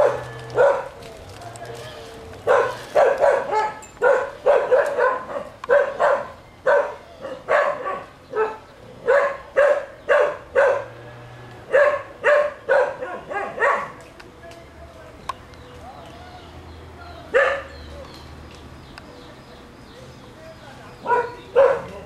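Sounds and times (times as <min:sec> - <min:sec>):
dog barking: 0:00.0 - 0:01.0, 0:02.4 - 0:11.0, 0:11.7 - 0:14.0, 0:17.3 - 0:17.7, 0:21.0 - 0:22.0.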